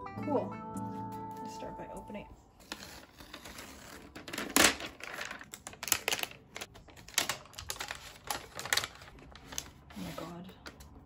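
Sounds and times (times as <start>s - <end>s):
paper rustling: 2.6s - 10.8s.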